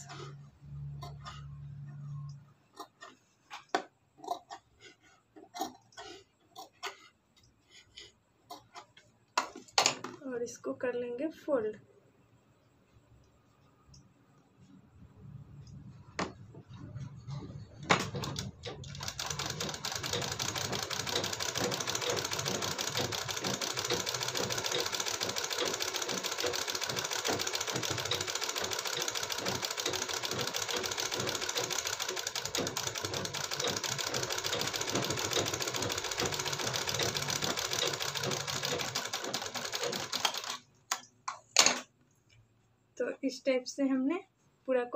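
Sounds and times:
sewing machine stitching: 0.0s - 7.5s, 16.6s - 40.7s.

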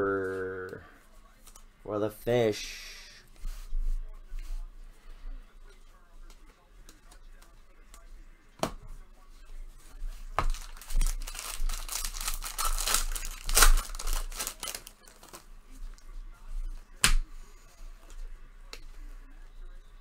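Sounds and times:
wrapper tearing and crinkling: 10.5s - 15.5s.

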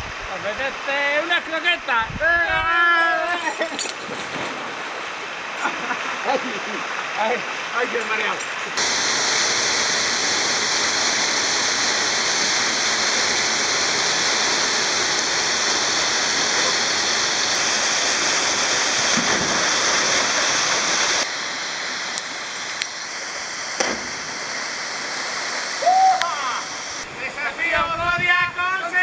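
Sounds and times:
waterfall rushing: 0.1s - 27.3s
waterfall pouring into pool: 4.3s - 27.0s.

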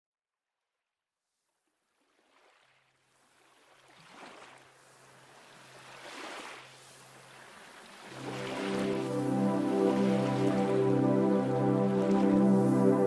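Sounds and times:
water rushing and splashing: 2.1s - 13.0s.

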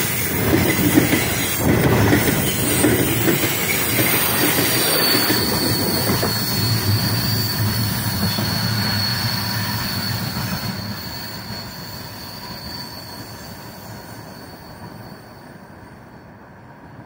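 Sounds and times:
high flange squeal: 0.0s - 16.6s
train wheels rumbling on rails: 0.0s - 17.0s.

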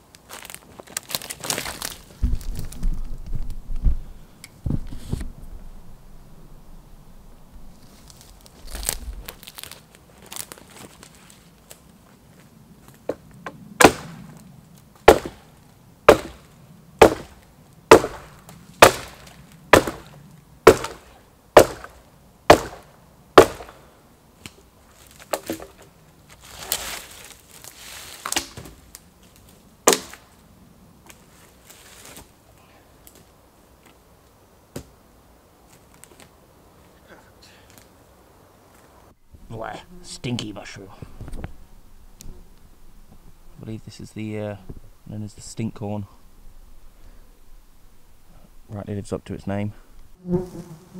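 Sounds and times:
axe chopping wood: 13.8s - 14.1s, 15.0s - 15.4s, 16.1s - 23.8s, 29.9s - 30.2s.

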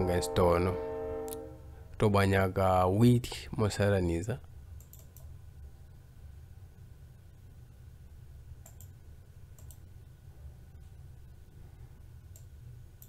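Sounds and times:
faint low hum: 0.0s - 13.0s
computer mouse clicks: 4.8s - 5.3s, 8.6s - 9.0s, 9.6s - 9.8s, 12.3s - 13.0s.

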